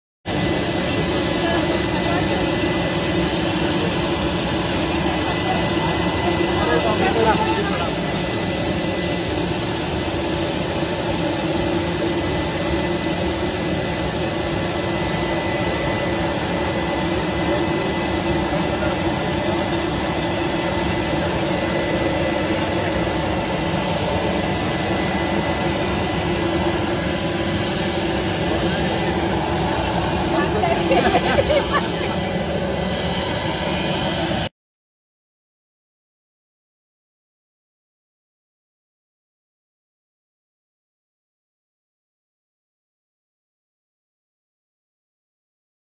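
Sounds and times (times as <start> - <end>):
jet turbine running with whine: 0.3 - 34.5.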